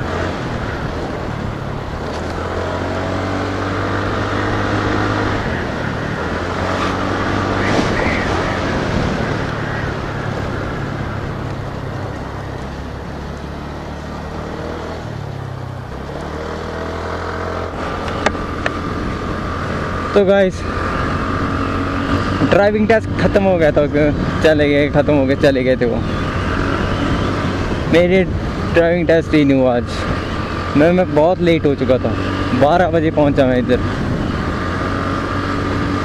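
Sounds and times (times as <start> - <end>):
scooter engine running: 0.0 - 22.5
wind and road noise: 0.0 - 36.0.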